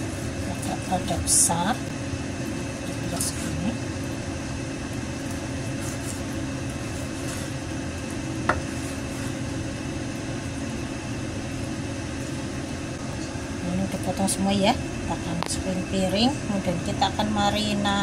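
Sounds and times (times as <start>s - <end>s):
steady machine hum: 0.0s - 18.0s
knife cutting raw chicken: 5.7s - 7.6s.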